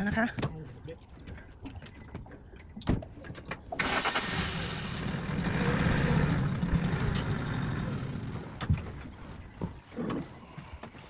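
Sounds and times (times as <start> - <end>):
engine starting and running: 3.7 - 9.2.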